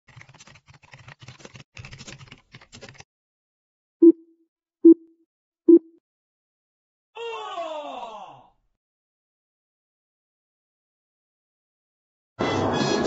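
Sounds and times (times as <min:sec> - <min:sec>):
keyboard typing clicks: 0:00.1 - 0:03.0.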